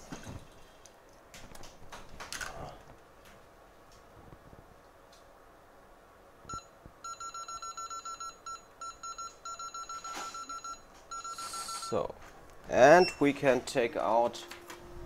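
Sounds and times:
short electronic beeps: 6.5 - 12.0.

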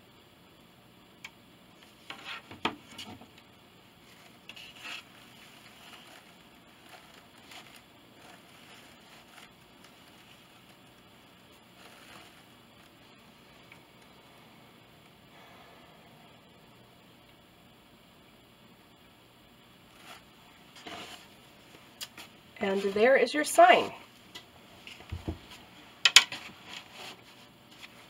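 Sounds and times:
soft scrape: 19.9 - 21.3.

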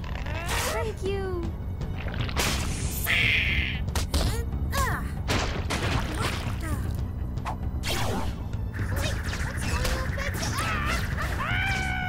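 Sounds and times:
cartoon action music: 2.0 - 4.4, 7.8 - 12.0.

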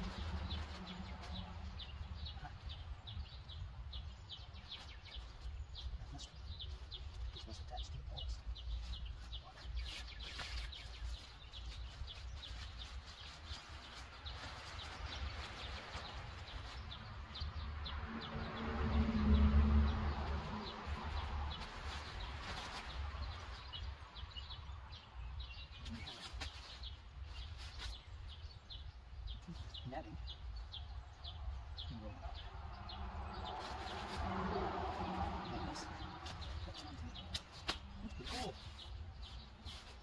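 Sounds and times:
songbird chirping: 0.0 - 40.0.

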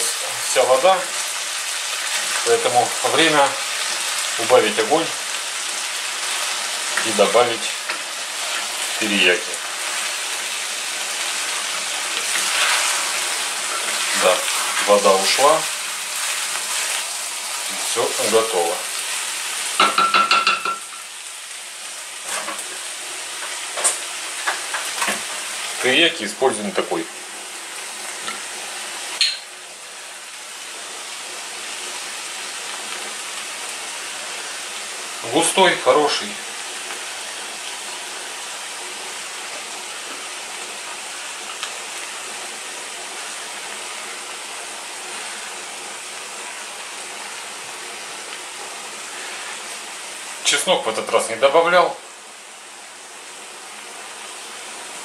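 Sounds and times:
food sizzling in a frying pan: 0.0 - 55.0
wooden spatula scraping a pan: 11.4 - 18.4.

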